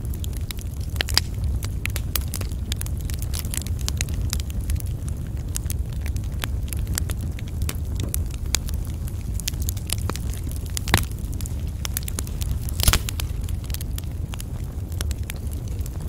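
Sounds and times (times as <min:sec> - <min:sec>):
loud fire pops: 0:00.0 - 0:16.0
wood fire crackling: 0:00.0 - 0:16.0.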